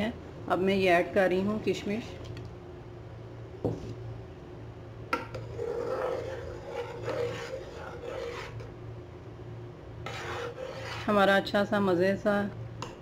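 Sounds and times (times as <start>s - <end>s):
spoon scraping saucepan: 5.2s - 8.7s, 10.0s - 11.3s.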